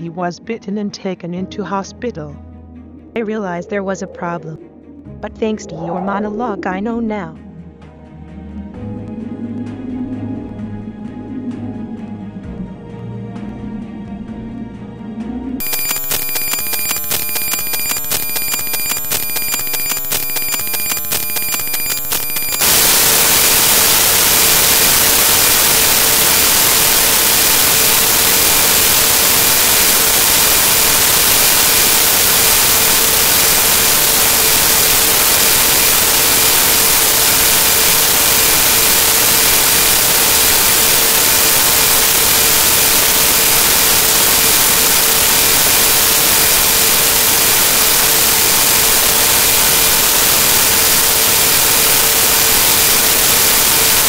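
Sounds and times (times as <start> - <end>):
loud static hiss: 15.6 - 54.0.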